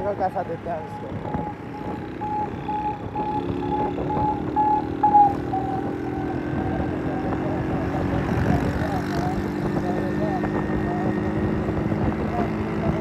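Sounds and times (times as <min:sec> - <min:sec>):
short electronic beeps: 0:00.8 - 0:06.6
small motorcycle engine running: 0:00.9 - 0:13.0.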